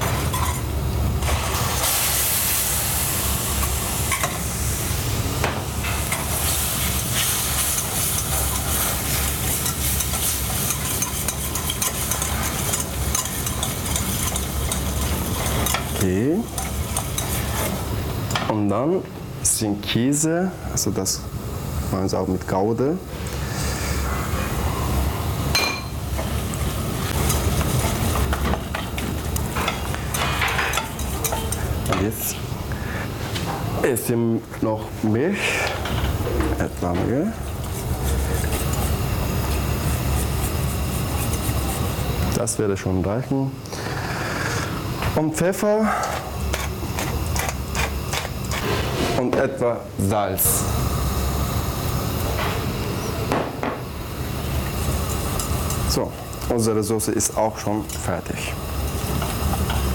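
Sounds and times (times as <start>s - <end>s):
roux sizzling: 0.0s - 18.4s, 24.9s - 33.2s, 36.8s - 42.5s, 46.3s - 49.0s, 53.8s - 59.9s
steady low hum: 0.0s - 59.9s
whisk scraping a saucepan: 5.8s - 17.9s, 27.1s - 32.4s, 37.2s - 42.2s, 45.9s - 49.1s.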